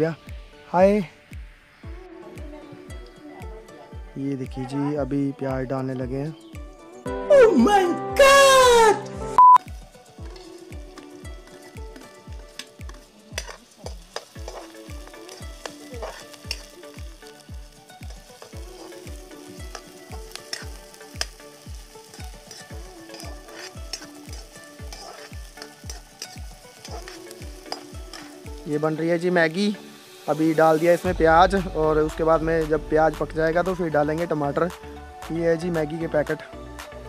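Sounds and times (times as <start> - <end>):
onions sizzling in hot oil: 0.0 - 6.7, 9.6 - 36.9
background music beat: 0.0 - 37.0.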